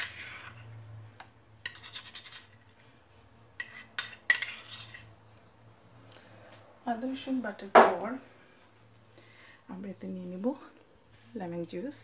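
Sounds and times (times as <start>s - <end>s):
metal spoon scraping bowl: 0.0s - 0.8s, 1.6s - 2.8s, 3.5s - 5.2s.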